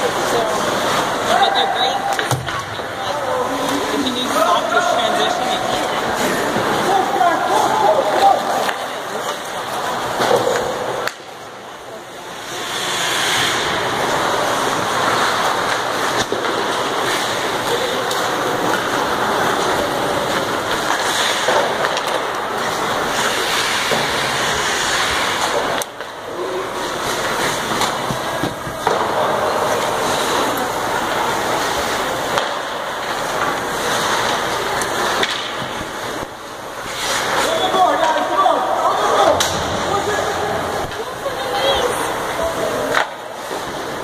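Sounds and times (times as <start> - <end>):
skate blades scraping ice: 3.2 - 44.0.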